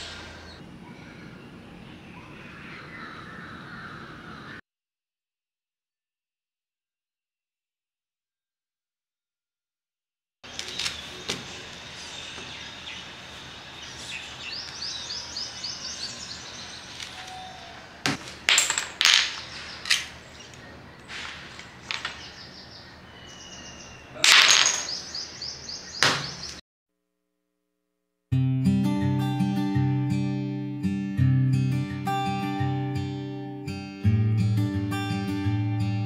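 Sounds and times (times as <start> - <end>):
birds chirping: 0.0 - 4.6, 10.4 - 18.5, 19.2 - 26.6.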